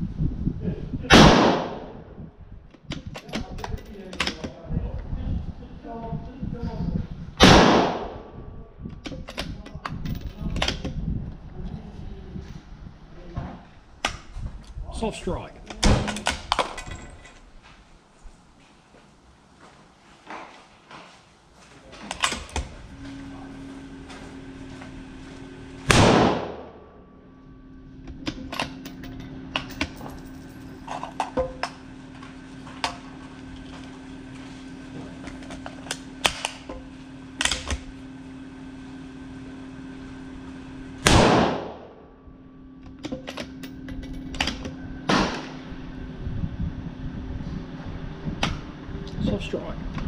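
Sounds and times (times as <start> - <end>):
steady low hum: 0.0 - 50.0
rifle shots with echo: 1.1 - 2.0, 7.4 - 8.3, 25.9 - 26.8, 41.0 - 41.9
sharp clicks and knocks: 2.7 - 4.6, 8.9 - 11.0, 42.8 - 45.5.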